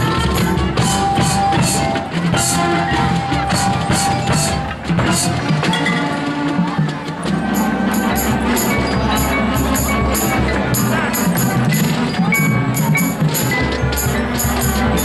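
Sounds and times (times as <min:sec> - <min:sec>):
marching band playing: 0:00.0 - 0:15.0
marimbas: 0:00.0 - 0:15.0.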